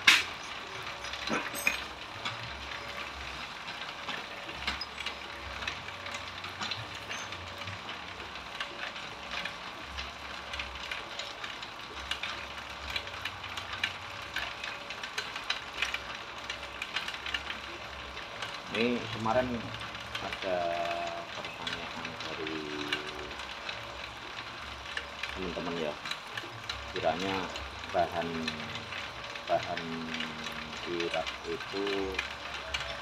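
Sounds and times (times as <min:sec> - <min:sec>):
bamboo strips clicking and rattling: 0:00.0 - 0:33.0
machine motor humming: 0:16.0 - 0:33.0.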